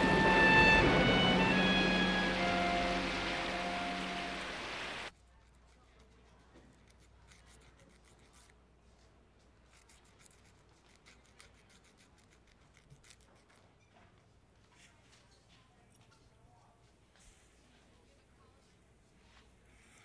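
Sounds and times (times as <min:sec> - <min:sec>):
film score music: 0:00.0 - 0:05.1.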